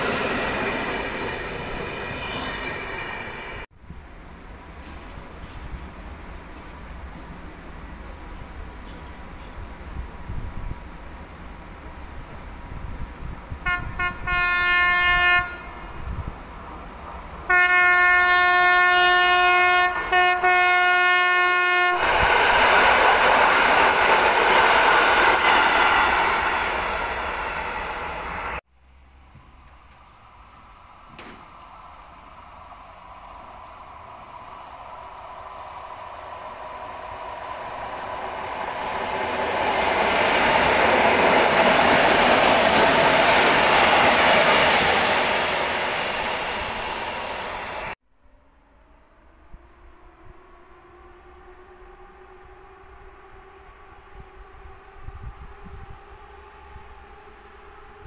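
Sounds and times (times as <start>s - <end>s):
approaching train rumble: 0.0s - 58.0s
train passing rumble: 0.0s - 58.0s
train horn tooting: 13.6s - 15.9s, 17.4s - 22.0s.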